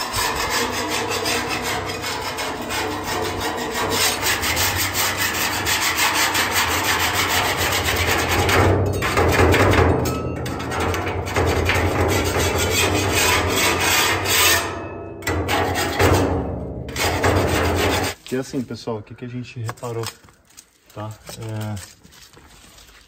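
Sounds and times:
rapid scraping on hard surface: 0.0s - 9.8s, 10.5s - 14.7s, 16.9s - 18.2s.

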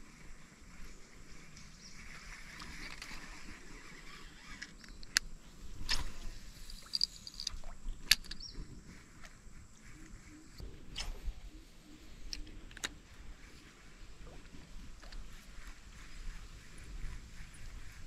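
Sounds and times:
fishing reel clicks: 2.6s - 8.6s.

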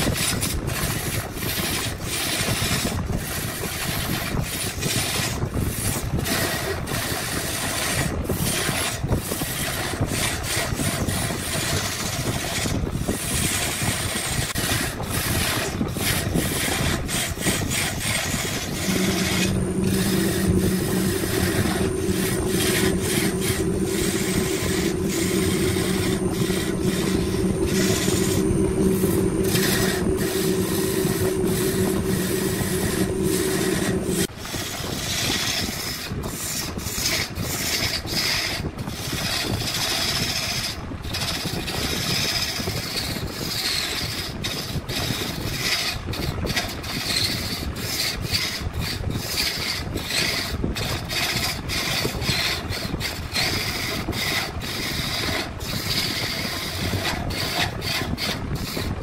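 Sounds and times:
rasping strokes against wood: 0.0s - 59.0s
machine hum: 8.6s - 34.4s, 50.8s - 59.0s.

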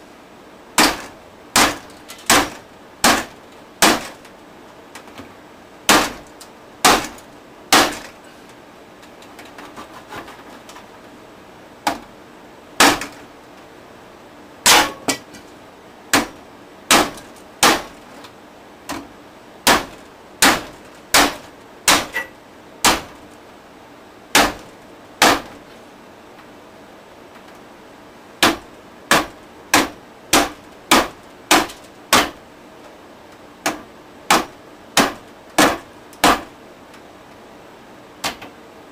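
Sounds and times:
hammer striking stereo: 0.8s - 4.2s, 5.9s - 8.1s, 12.8s - 13.2s, 14.6s - 15.3s, 16.1s - 18.0s, 19.6s - 23.2s, 24.3s - 25.6s, 28.4s - 32.4s.

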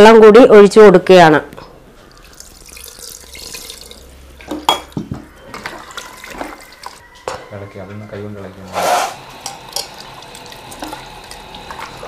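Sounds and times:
water pouring into pot: 2.0s - 7.0s, 9.2s - 12.0s.

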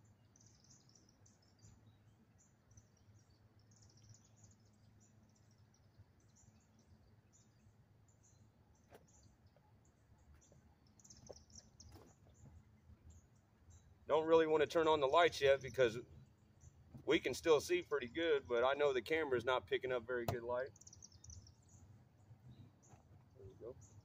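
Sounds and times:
faint high chirping: 0.0s - 18.8s.

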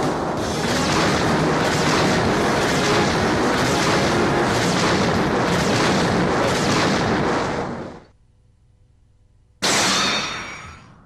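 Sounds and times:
explosion sound effect: 0.0s - 8.1s.

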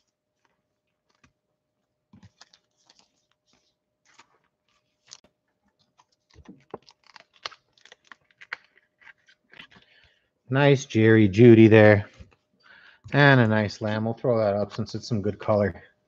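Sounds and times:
trading cards clicking and rustling: 2.2s - 10.0s.

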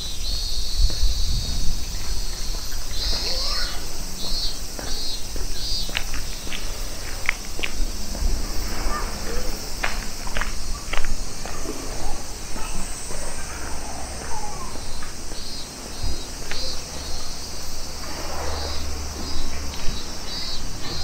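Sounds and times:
insects trilling: 0.0s - 21.0s
low rumble: 6.7s - 13.1s.

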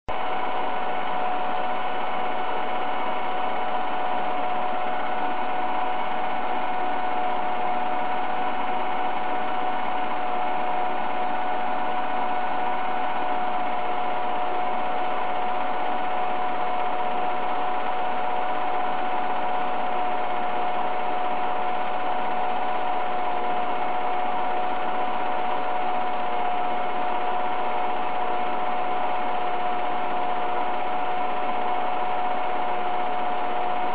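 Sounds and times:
film projector running: 0.1s - 33.9s.

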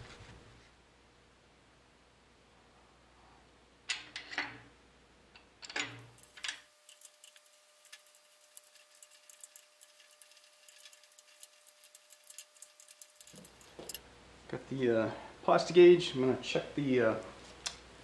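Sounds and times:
ratcheting torque wrench clicking: 6.0s - 14.0s.

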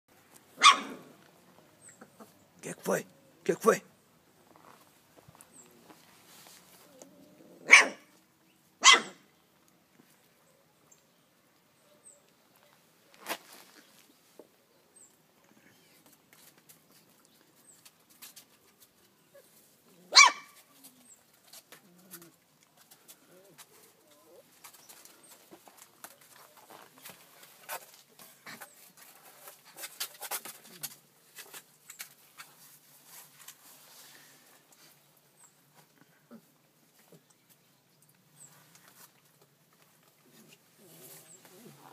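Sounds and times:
puppy yelp: 0.6s - 1.0s, 7.7s - 8.1s, 8.8s - 9.2s, 20.1s - 20.6s
puppies scratching on cardboard: 20.5s - 34.0s.

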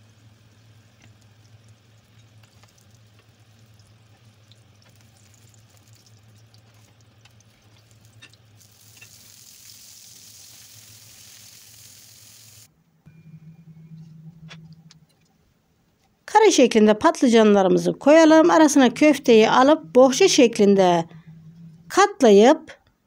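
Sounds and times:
slices sizzling in hot oil: 0.0s - 12.7s.

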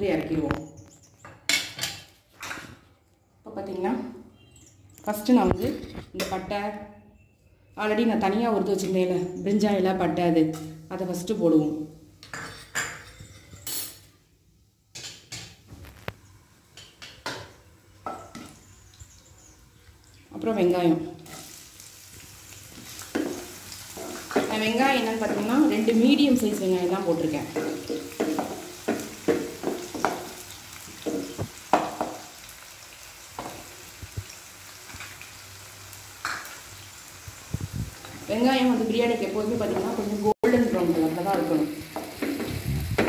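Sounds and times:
spices crackling in hot oil: 15.8s - 43.0s
wooden spatula scraping a pan: 22.8s - 25.5s.

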